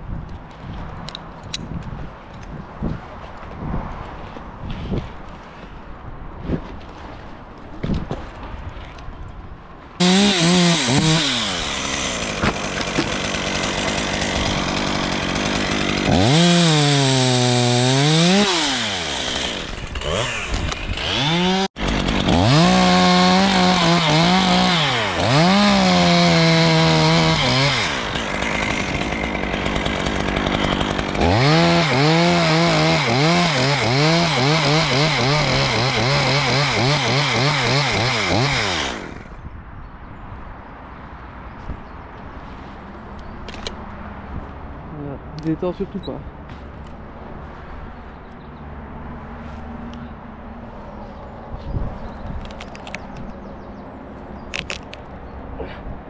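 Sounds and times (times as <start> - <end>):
chainsaw cutting wood: 10.0 - 39.4.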